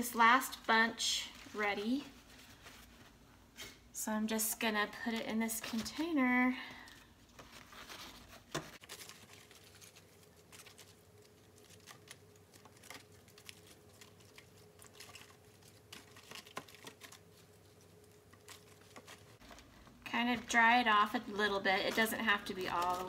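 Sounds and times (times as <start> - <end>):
faint steady hum: 0.0 - 23.0
lettuce leaves rustling: 4.9 - 23.0.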